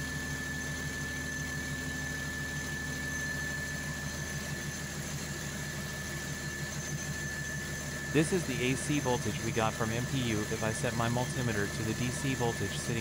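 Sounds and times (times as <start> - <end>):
diesel generator engine running: 6.8 - 13.0.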